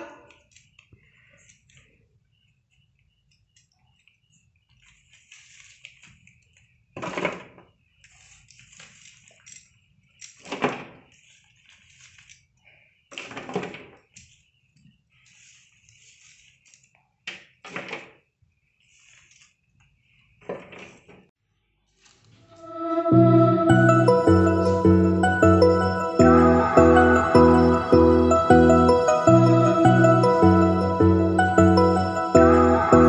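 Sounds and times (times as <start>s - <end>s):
soft rustling: 3.8s - 6.9s, 11.0s - 12.9s, 14.1s - 17.2s, 18.4s - 22.6s.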